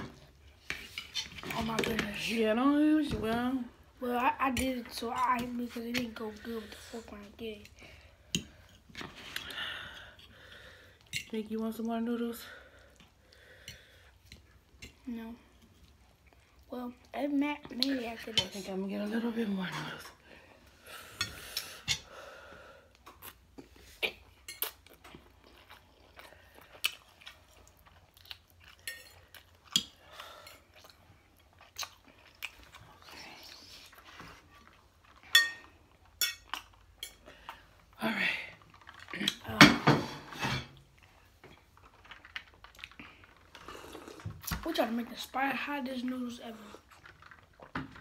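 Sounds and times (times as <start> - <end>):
chewing noodles: 22.9 - 39.4, 40.9 - 44.5, 46.5 - 48.0
forks clinking on ceramic plates: 35.3 - 35.6.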